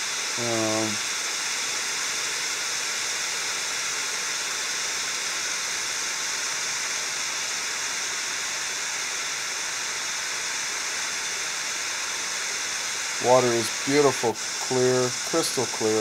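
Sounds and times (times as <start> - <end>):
creek water flowing: 13.0 - 16.0.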